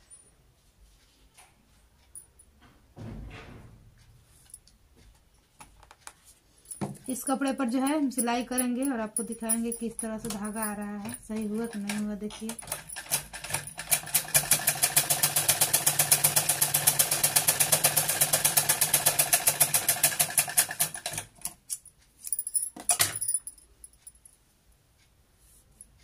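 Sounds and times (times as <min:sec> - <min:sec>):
sewing machine clatter: 0:10.2 - 0:21.6
sewing machine clicks: 0:10.2 - 0:21.7.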